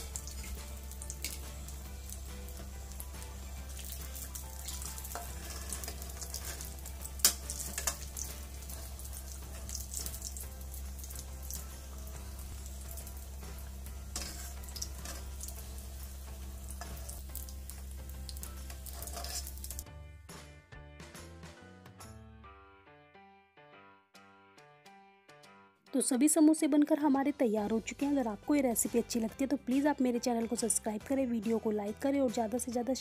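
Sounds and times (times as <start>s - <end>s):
food deep-frying in oil: 0.0s - 19.8s.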